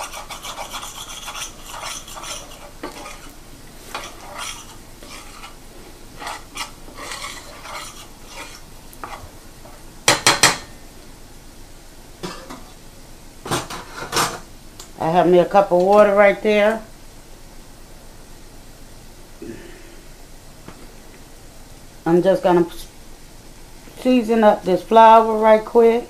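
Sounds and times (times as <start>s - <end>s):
metal spatula scraping skillet: 0.0s - 9.3s
light sizzle: 0.0s - 26.0s.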